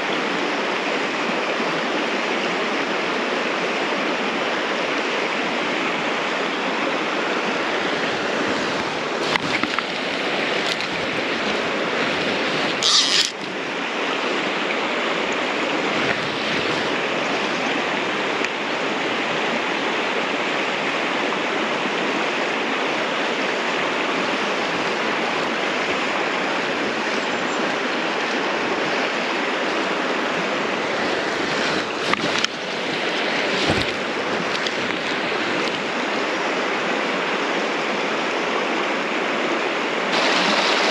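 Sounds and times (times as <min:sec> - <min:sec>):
river water over stones: 0:00.0 - 0:40.9.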